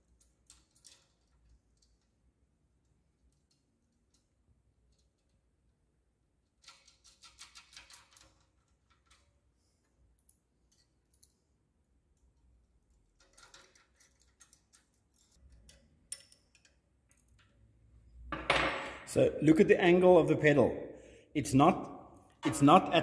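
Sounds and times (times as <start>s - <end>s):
metal rod clicks and rattles: 0.1s - 2.1s, 6.6s - 9.4s, 12.9s - 17.6s.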